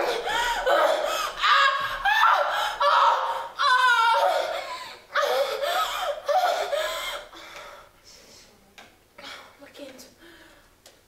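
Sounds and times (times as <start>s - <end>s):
woman crying out: 0.0s - 7.3s.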